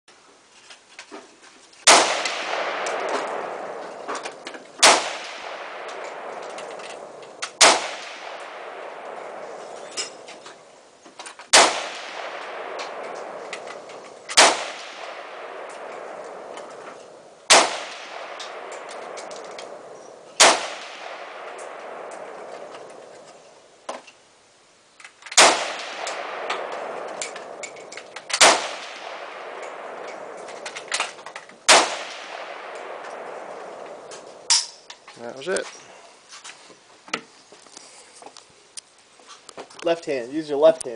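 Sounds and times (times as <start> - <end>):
rifle shots with echo: 1.9 - 10.8, 11.5 - 23.3, 25.3 - 34.7.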